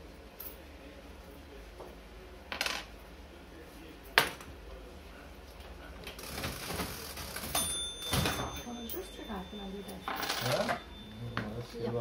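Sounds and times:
coin clinking on wooden counter: 2.5s - 2.9s, 7.4s - 9.0s, 9.9s - 10.9s
cash register keys clacking: 7.4s - 9.1s.

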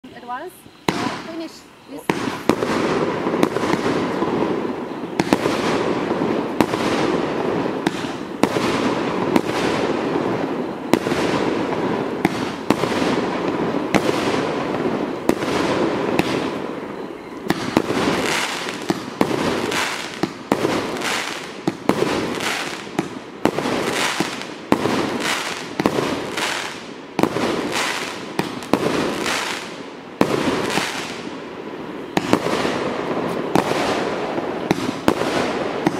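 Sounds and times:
fireworks crackling hiss: 0.0s - 35.9s
fireworks launch and burst reports: 0.1s - 10.0s.

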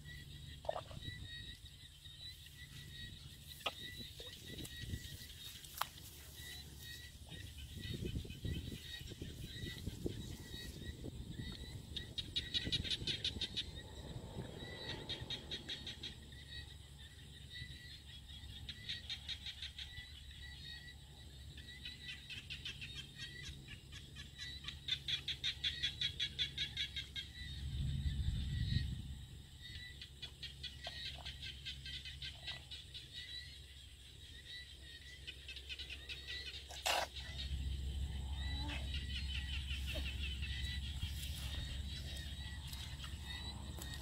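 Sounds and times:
low rumble: 6.4s - 17.9s, 27.2s - 30.1s, 37.2s - 44.0s.

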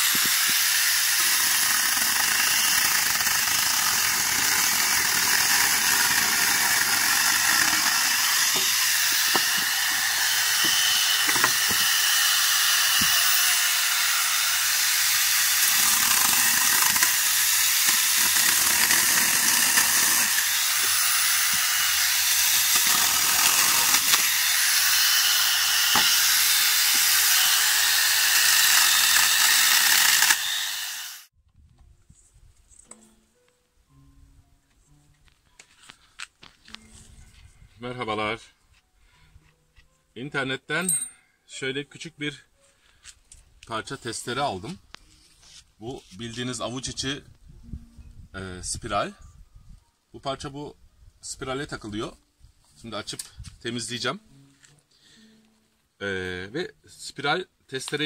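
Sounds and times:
power saw whining cutting wood: 0.0s - 31.3s.

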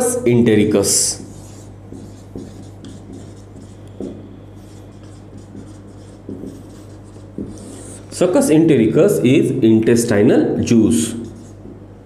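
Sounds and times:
marker scratching on whiteboard: 0.6s - 8.4s, 10.9s - 11.9s.

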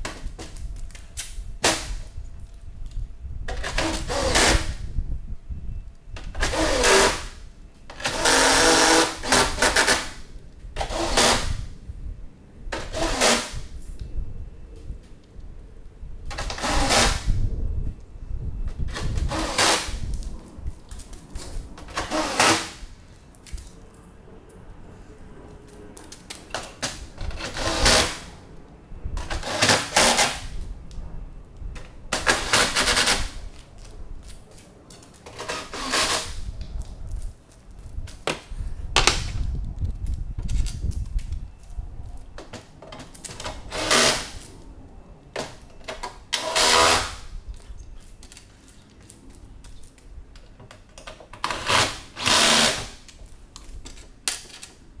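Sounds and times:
hand-held power tool bursts: 51.5s - 53.0s.

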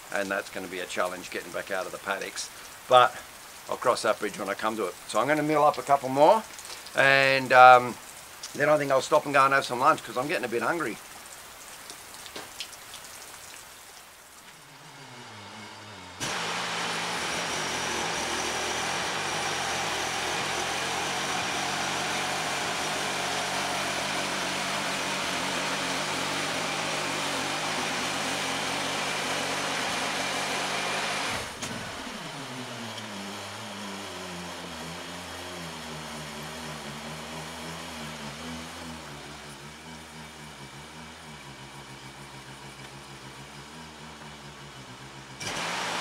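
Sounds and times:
engine running: 14.3s - 46.0s
bandsaw blade cutting log: 14.5s - 39.6s, 45.4s - 46.0s.

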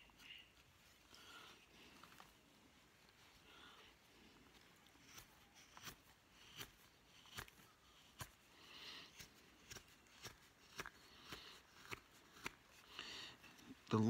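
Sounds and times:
soft wood shaving scrapes: 0.0s - 14.0s
knife cutting wood clicks: 9.2s - 12.6s.

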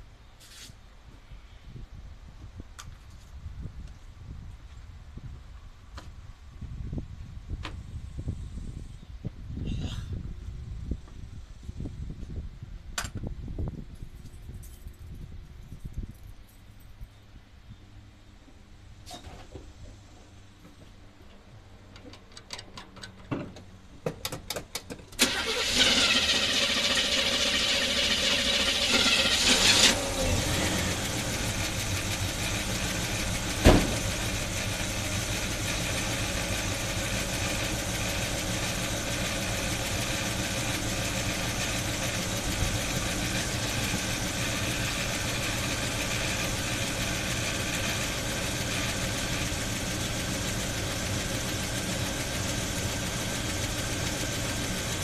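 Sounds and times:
car engine idling: 25.2s - 55.0s.

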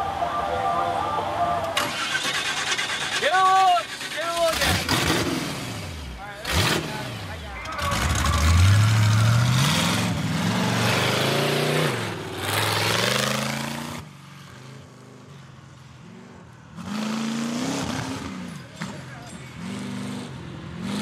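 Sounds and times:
truck engine revving hard: 1.8s - 14.1s, 16.8s - 21.0s.

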